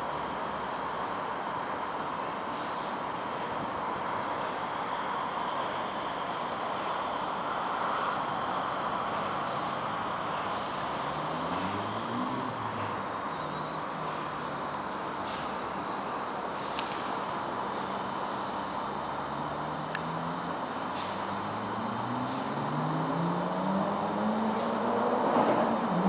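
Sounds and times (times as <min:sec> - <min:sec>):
gas burner hissing: 0:00.0 - 0:26.0
low engine hum: 0:00.0 - 0:26.0.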